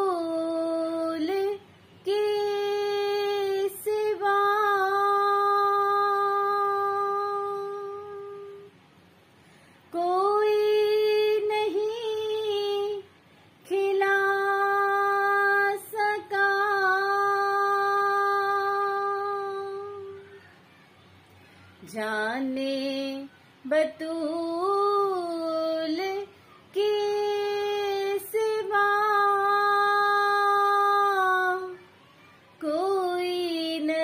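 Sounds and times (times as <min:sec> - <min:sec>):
woman singing unaccompanied: 0:00.0 - 0:08.8, 0:09.8 - 0:20.4, 0:21.8 - 0:31.9, 0:32.6 - 0:34.0.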